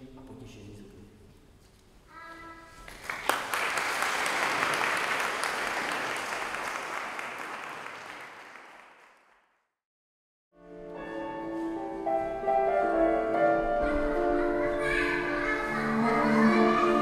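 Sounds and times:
audience clapping: 0:02.8 - 0:09.7.

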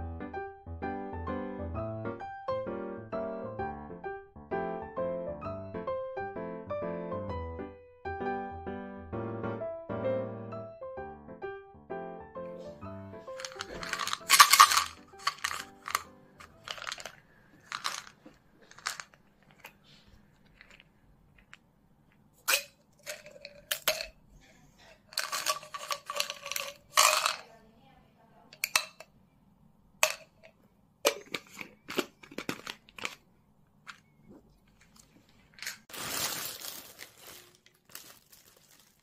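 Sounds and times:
plastic bottle cap twisting: 0:13.3 - 0:24.1, 0:25.1 - 0:27.4, 0:30.0 - 0:33.2.

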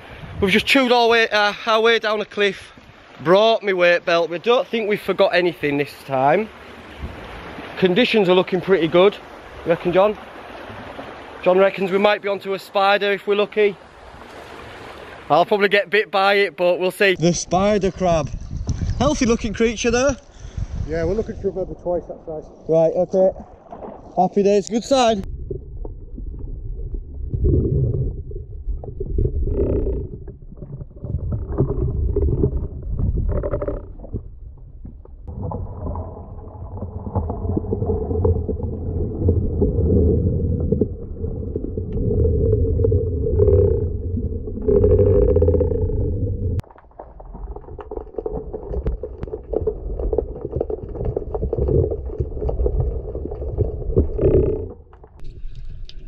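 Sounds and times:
muffled underwater rumbling: 0:17.2 - 0:56.0
clicks and crackles: 0:46.6 - 0:56.0.

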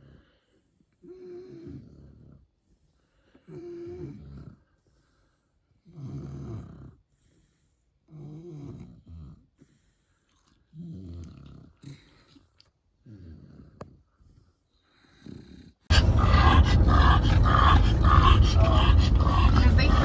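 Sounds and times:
dog snoring: 0:00.0 - 0:20.0.

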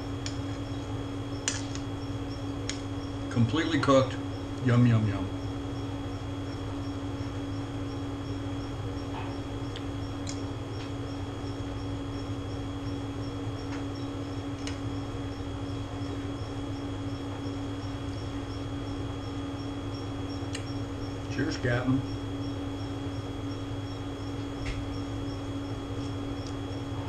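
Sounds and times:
air conditioner humming: 0:00.0 - 0:27.0
soft eating clicks: 0:00.1 - 0:00.7, 0:07.9 - 0:15.0.

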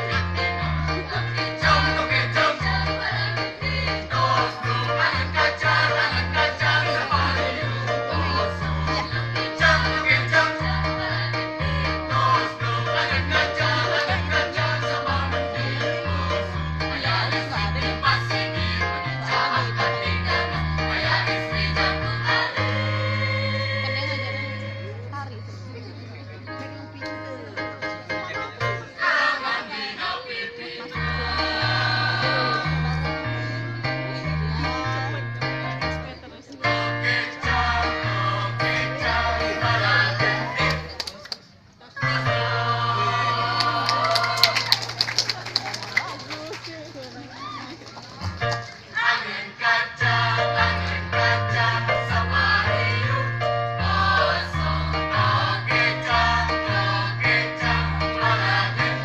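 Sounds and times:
mixed choir singing: 0:00.0 - 0:25.1, 0:28.7 - 0:34.6, 0:36.6 - 0:40.9, 0:42.0 - 0:44.4, 0:48.8 - 0:59.0
instrumental bass notes and chords: 0:00.0 - 0:25.9, 0:31.0 - 0:36.2, 0:36.8 - 0:41.0, 0:50.1 - 0:59.0
instrumental accompaniment: 0:30.3 - 0:41.0.

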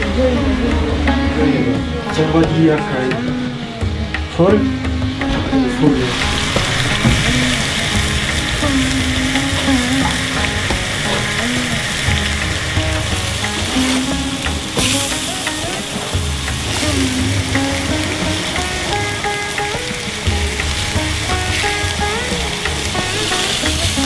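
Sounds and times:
faint melody: 0:00.0 - 0:24.0
burger patties sizzling on grill: 0:06.6 - 0:24.0.

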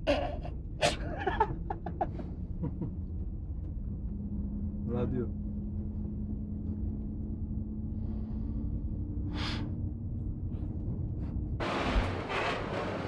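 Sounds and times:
coach engine hum and road noise: 0:00.1 - 0:08.6.

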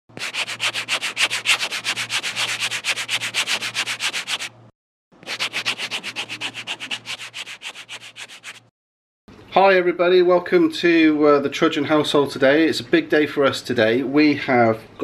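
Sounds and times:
scribbling on paper: 0:00.2 - 0:04.5, 0:05.2 - 0:08.7.

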